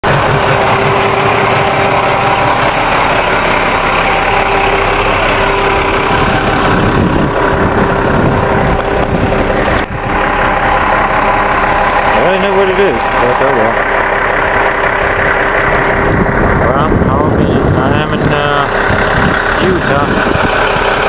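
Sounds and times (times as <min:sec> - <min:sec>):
road noise: 0:00.0 - 0:21.0
vehicle engine hum: 0:00.0 - 0:21.0.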